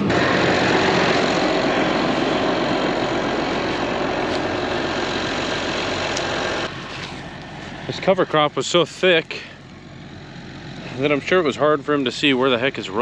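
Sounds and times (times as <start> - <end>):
tractor engine running under load: 0.0 - 13.0.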